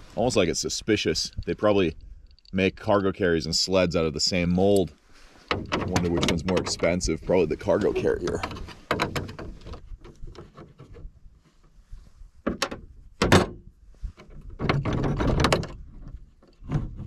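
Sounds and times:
plastic knocks: 8.4s - 10.4s.

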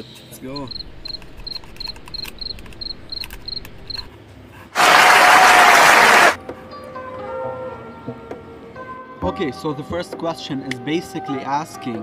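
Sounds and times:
high chirping: 0.4s - 4.1s
audience applause: 4.8s - 6.4s.

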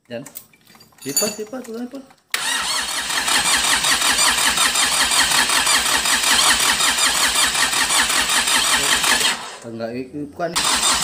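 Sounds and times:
diesel engine cranking on starter: 2.3s - 9.7s, 10.6s - 11.0s.

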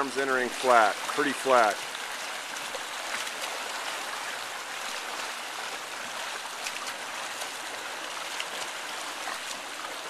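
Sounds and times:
swimmer splashing water: 0.0s - 10.0s.

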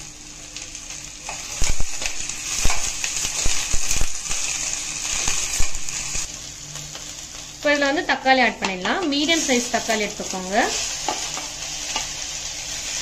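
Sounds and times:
vegetables sizzling in hot oil: 0.0s - 13.0s
metal spoon scraping a pan: 10.7s - 13.0s.

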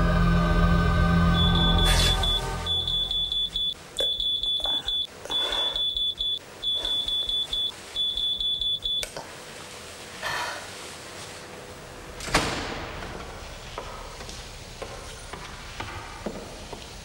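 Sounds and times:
alarm clock beeping: 1.3s - 9.0s.

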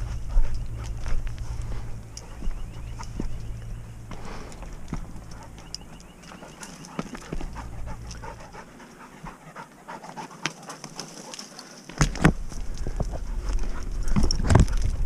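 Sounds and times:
twigs crackling: 0.0s - 9.0s, 10.1s - 15.0s
dog panting: 0.0s - 11.9s
scuffs on rocky ground: 0.0s - 15.0s.

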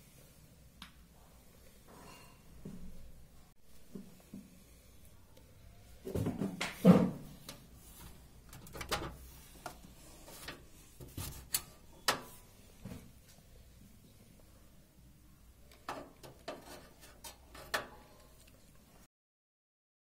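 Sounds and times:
handling knocks and clicks: 8.4s - 12.3s.

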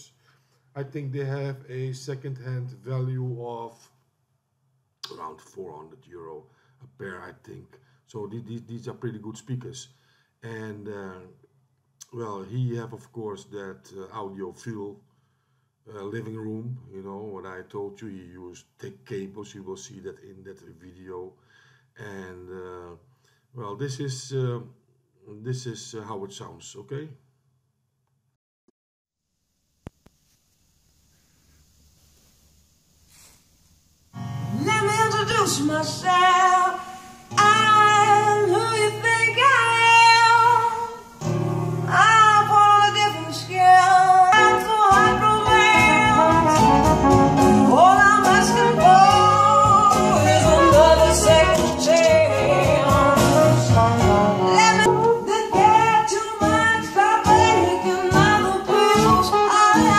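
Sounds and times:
faint room hiss: 0.0s - 27.6s, 29.2s - 59.9s
song through speakers: 34.3s - 59.9s.

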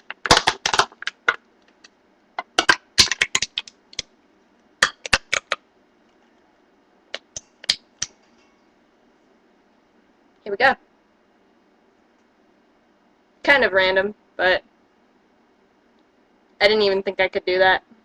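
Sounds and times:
soda can being crushed: 0.0s - 1.4s, 2.4s - 4.0s, 4.8s - 5.6s.

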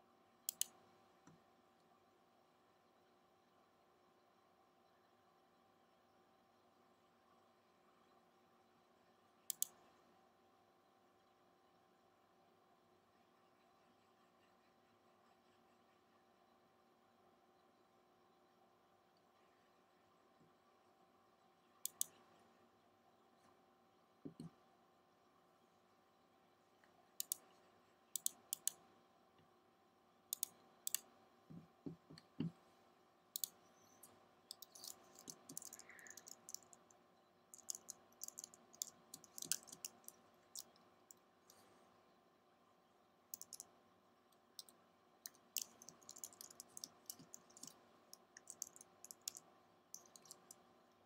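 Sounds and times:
faint electrical hum: 0.0s - 51.0s
computer mouse clicks: 0.5s - 1.4s, 9.5s - 9.9s, 21.8s - 22.3s, 26.8s - 28.8s, 30.3s - 32.6s, 33.3s - 41.7s, 43.3s - 43.7s, 44.3s - 50.6s.

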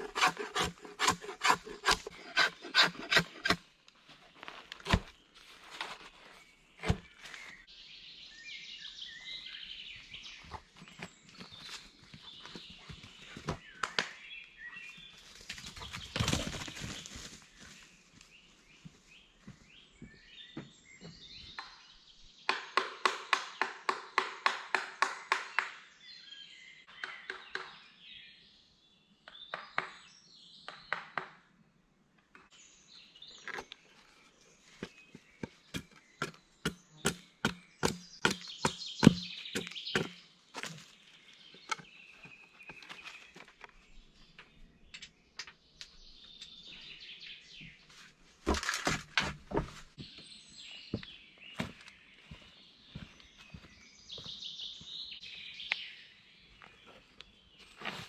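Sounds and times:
birds calling: 33.0s - 58.0s.

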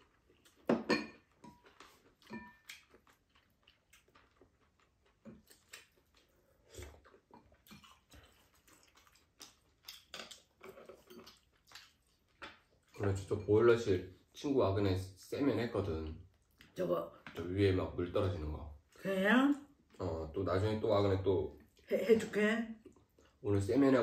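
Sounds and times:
chewing: 0.0s - 13.3s.

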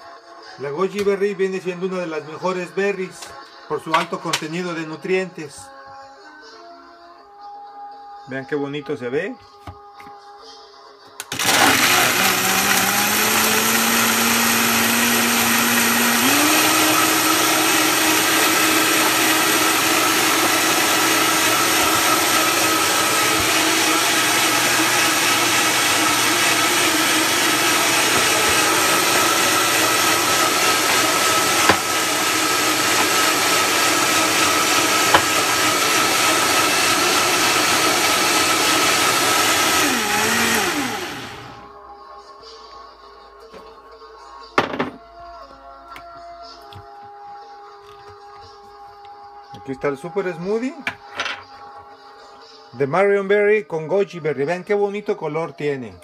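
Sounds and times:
blender motor whining: 11.2s - 41.7s.

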